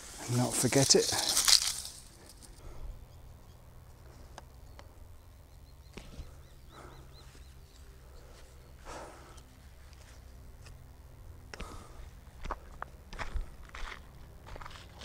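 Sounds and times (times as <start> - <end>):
small bird chirping: 2.9 - 9.5.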